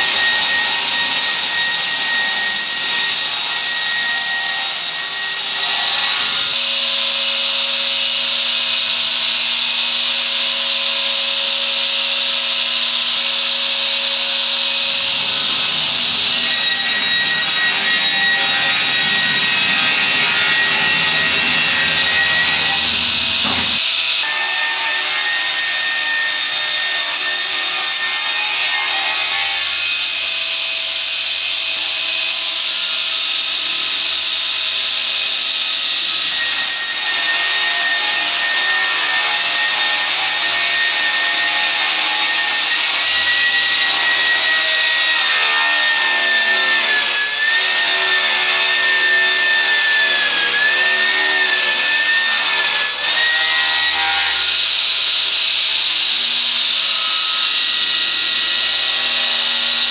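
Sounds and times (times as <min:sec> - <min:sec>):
circular saw blade whine: 0:00.0 - 0:59.9
sawmill cutting timber: 0:00.0 - 0:59.9.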